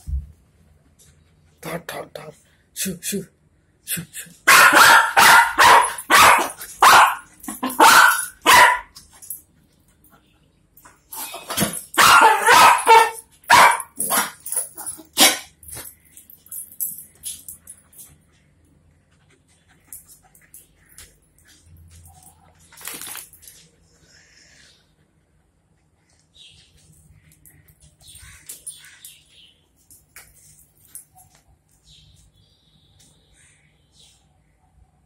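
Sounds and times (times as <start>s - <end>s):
dog barking: 4.5s - 8.9s, 12.0s - 14.4s.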